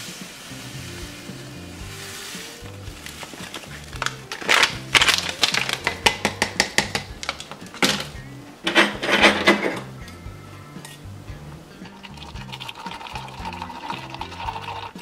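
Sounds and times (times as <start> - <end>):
background music with low notes: 0.0 - 15.0
plastic foil pouch crinkling: 1.9 - 8.1
pouch tapping against glass mug: 3.1 - 8.1.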